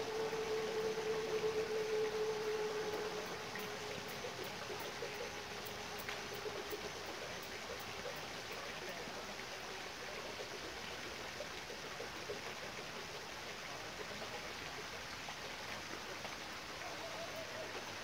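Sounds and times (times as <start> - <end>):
rushing water: 0.0 - 18.0.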